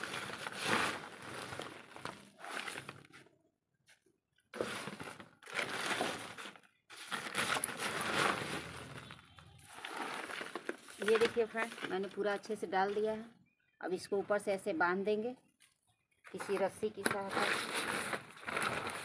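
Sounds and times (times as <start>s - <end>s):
hands scooping and pressing soil: 0.0s - 3.2s, 4.6s - 12.5s.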